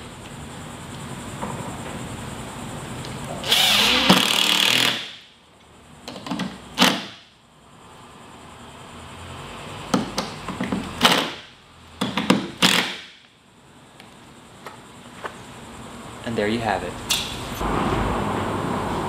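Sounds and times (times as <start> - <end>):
cordless drill driving screw: 3.4 - 5.1.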